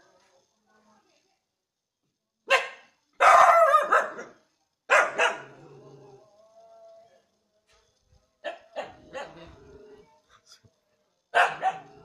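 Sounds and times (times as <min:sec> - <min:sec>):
dog barking: 0:02.5 - 0:05.5, 0:08.4 - 0:09.5, 0:11.3 - 0:12.0.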